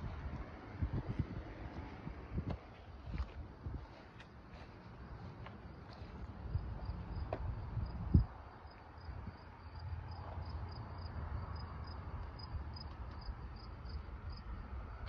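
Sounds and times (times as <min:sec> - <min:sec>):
insects chirping: 0:04.2 - 0:15.0.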